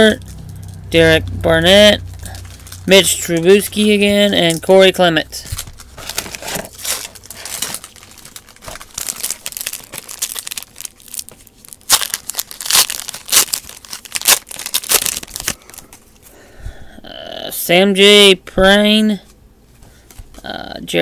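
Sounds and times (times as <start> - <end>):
foil wrapper crinkling and tearing: 1.8 - 16.0.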